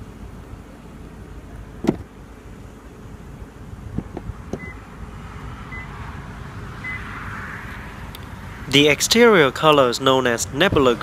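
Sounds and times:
car door latch clicking: 1.8 - 2.1, 3.9 - 4.8.

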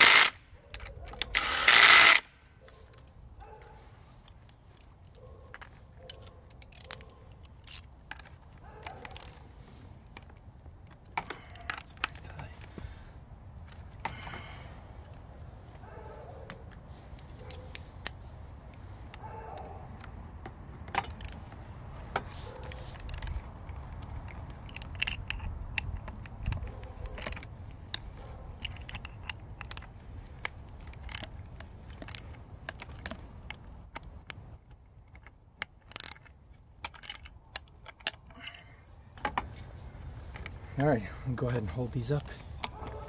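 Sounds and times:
ratchet clicking and bolts clinking: 0.0 - 2.2, 4.2 - 9.6, 20.9 - 40.5.

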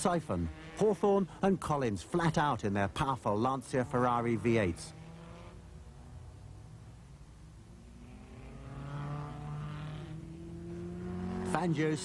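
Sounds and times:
racing car engine at high revs: 0.0 - 1.1, 3.6 - 12.0.

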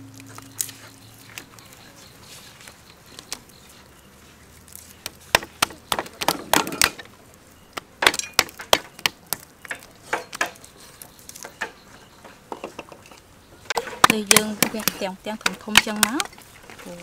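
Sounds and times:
cleavers knocking on wooden blocks: 5.0 - 7.1, 11.4 - 16.8.

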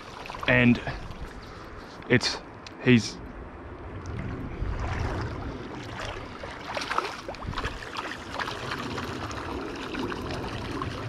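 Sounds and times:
river water splashing: 0.0 - 2.0, 4.1 - 11.0.

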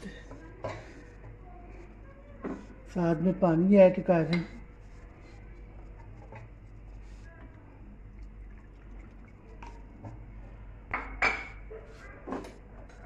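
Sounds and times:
faint drips and ticks: 5.2 - 10.6
water pouring into a glass: 8.1 - 9.9.

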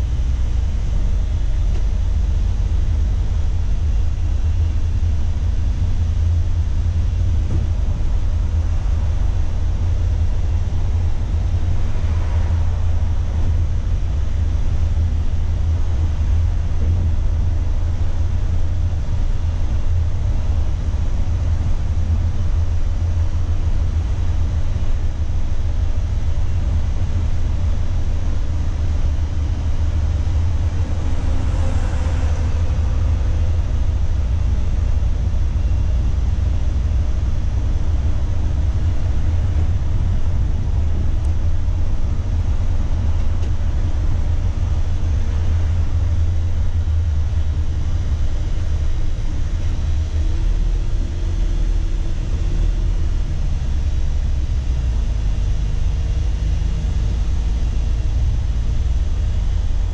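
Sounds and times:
coach engine and tyres rumble: 0.0 - 59.9.

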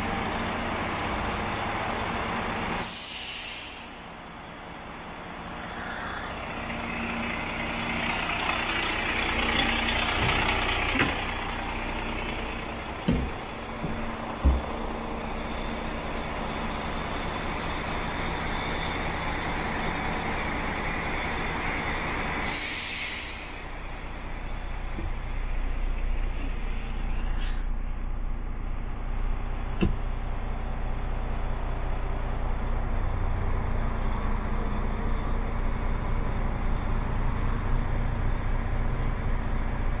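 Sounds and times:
diesel engine idling: 0.0 - 40.0
compressed air hissing: 2.8 - 3.9, 22.4 - 23.5, 27.2 - 27.9.

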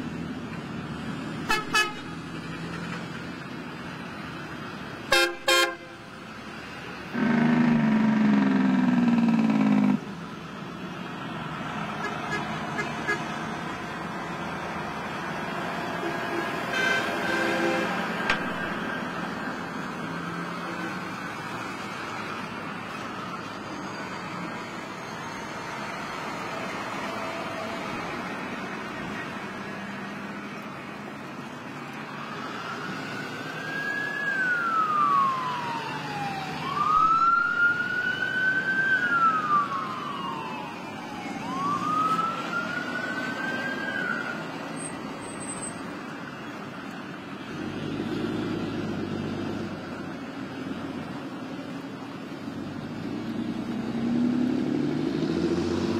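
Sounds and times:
heavy trucks engines running: 0.0 - 55.9
vehicle horn: 1.5 - 2.1, 5.1 - 6.0, 12.0 - 13.3, 16.1 - 18.1
police siren wailing: 15.9 - 29.4, 30.4 - 45.4.

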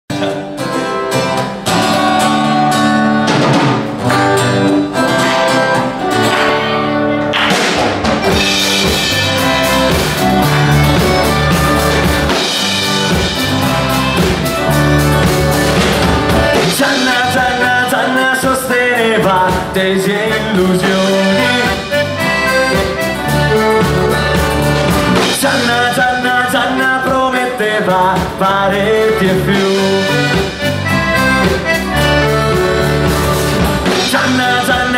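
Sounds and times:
drum kit: 0.1 - 34.9
strummed acoustic guitars: 0.1 - 34.9
accordion: 8.2 - 34.9.

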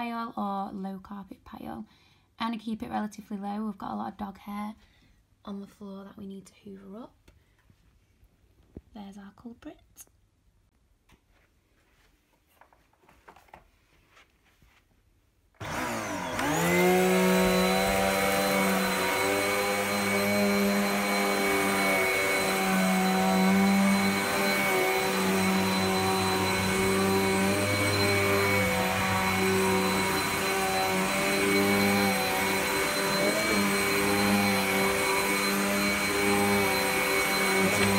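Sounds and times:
vacuum cleaner motor whine: 15.6 - 37.9.

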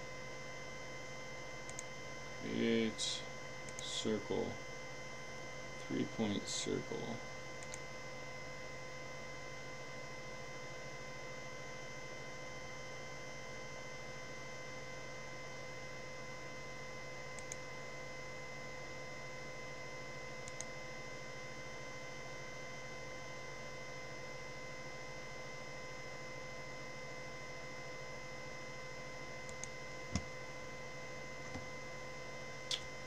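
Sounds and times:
electrical hum with whine: 0.0 - 33.0
computer mouse clicks: 1.7 - 1.9, 7.6 - 7.8, 17.4 - 17.6, 20.4 - 20.7, 29.5 - 30.3.

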